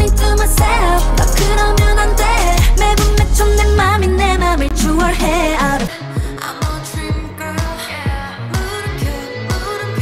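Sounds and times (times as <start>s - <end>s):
pop dance song with singing: 0.0s - 10.0s.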